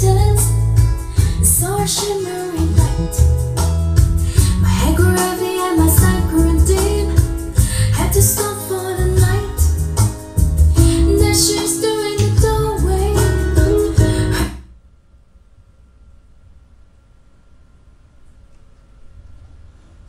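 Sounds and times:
deep bass and drums: 0.0s - 5.2s, 5.8s - 11.6s, 12.2s - 14.6s
high singing voice: 4.4s - 9.7s, 10.8s - 14.6s.

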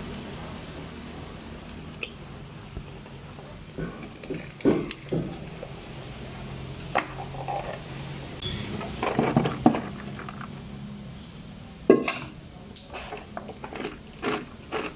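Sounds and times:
slices tumbling into a colander: 8.9s - 10.5s
pot knocking against colander: 11.9s - 12.3s.

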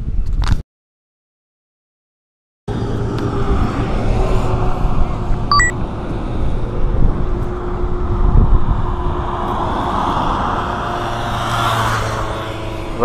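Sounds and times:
road traffic passing: 2.7s - 13.0s
wind buffeting microphone: 2.7s - 13.0s
two-note electronic beep: 5.5s - 5.8s.

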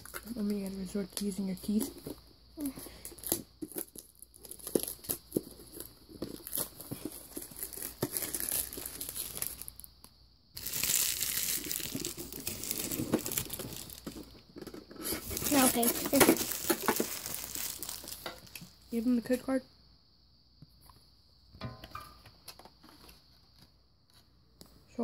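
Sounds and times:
plastic wrap crinkling: 0.0s - 9.9s, 10.6s - 14.4s, 15.0s - 18.8s.

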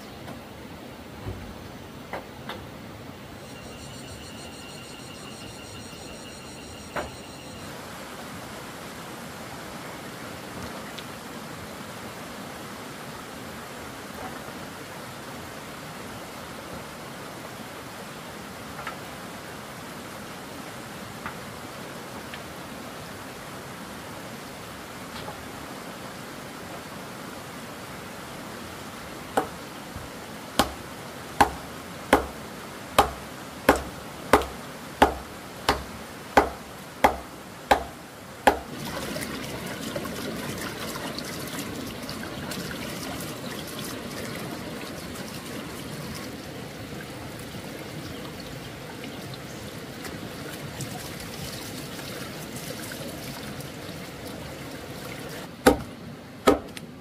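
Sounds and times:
running water trickling: 24.6s - 55.5s
sharp chopping thuds: 30.6s - 30.8s, 31.4s - 32.4s, 33.0s - 37.9s, 38.5s - 38.7s, 55.6s - 56.8s.

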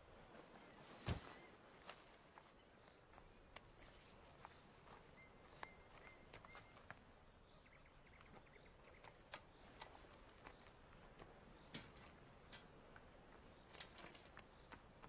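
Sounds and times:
insect chirping: 0.0s - 15.0s
footsteps clicking: 1.8s - 7.4s.

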